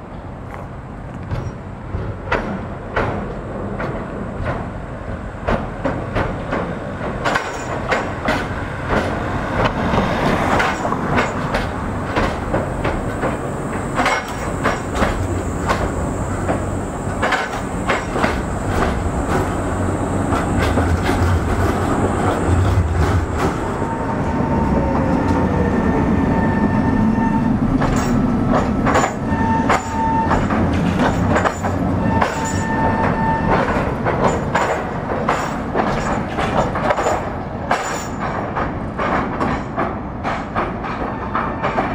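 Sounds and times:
tram wheels clacking over rails: 0.4s - 41.9s
short squeals: 32.0s - 33.8s.

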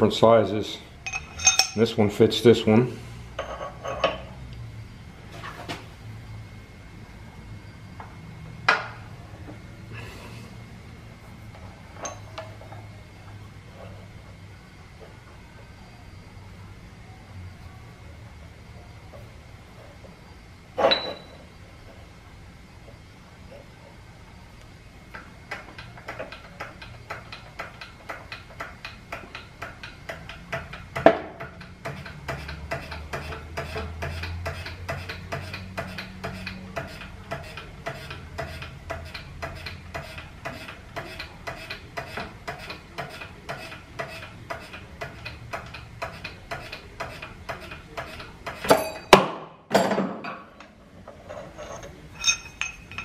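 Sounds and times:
low hum: 0.8s - 1.9s
metal clanks: 1.0s - 2.0s, 51.2s - 53.0s.

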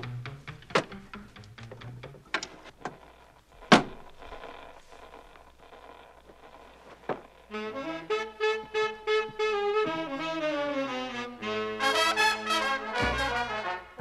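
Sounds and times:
radio knob clicking: 0.6s - 7.3s
big-band swing music with brass: 7.8s - 14.0s.

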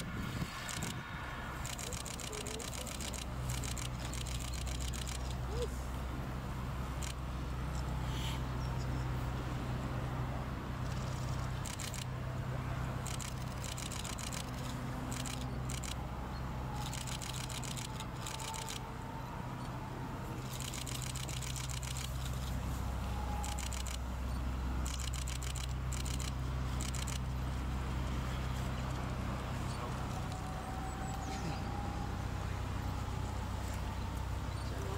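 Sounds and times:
steady low hum: 0.0s - 34.9s
camera shutters clicking: 0.6s - 1.0s, 1.6s - 5.4s, 10.8s - 12.1s, 13.0s - 16.0s, 16.8s - 18.8s, 20.5s - 22.5s, 23.4s - 24.0s, 24.8s - 27.3s.

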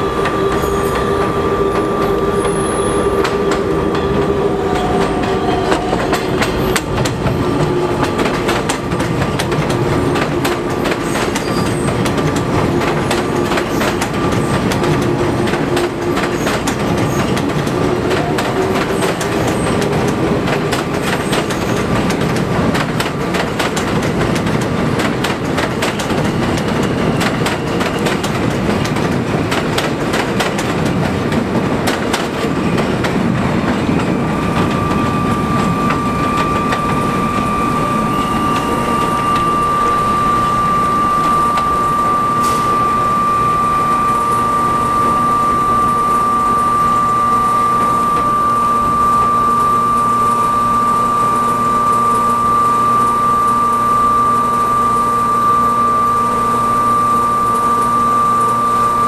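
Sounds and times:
train high whine: 0.0s - 59.0s
train wheels clattering over rail joints: 3.2s - 39.9s.

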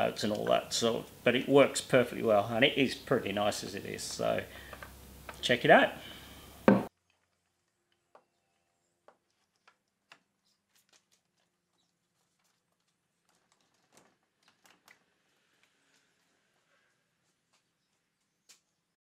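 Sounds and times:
loud knock: 6.6s - 6.9s.

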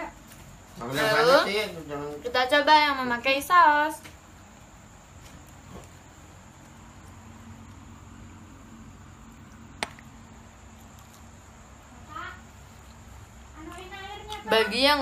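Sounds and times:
steady low hum: 2.8s - 15.0s.

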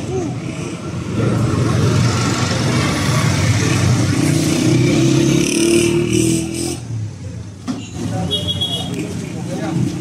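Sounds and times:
auto-rickshaw engine passing: 0.0s - 6.9s
street traffic: 0.0s - 10.0s.

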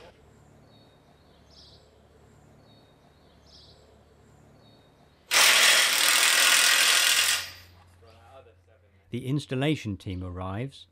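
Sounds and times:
cordless power driver running: 5.3s - 7.6s.

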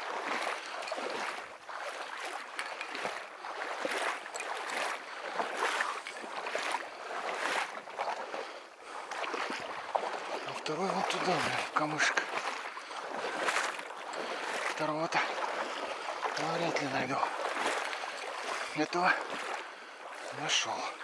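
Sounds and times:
wading through marsh water: 0.0s - 21.0s.

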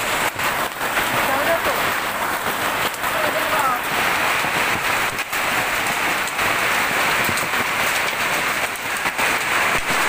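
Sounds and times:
hailstones striking: 0.0s - 10.0s
heavy rain pelting down: 0.0s - 10.0s.

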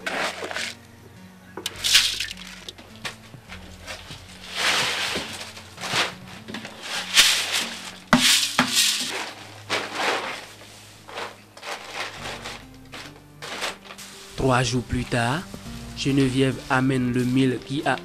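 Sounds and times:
plastic sheet rustling: 0.0s - 0.8s, 1.7s - 18.0s
wet grain swept on plastic: 3.8s - 12.6s.

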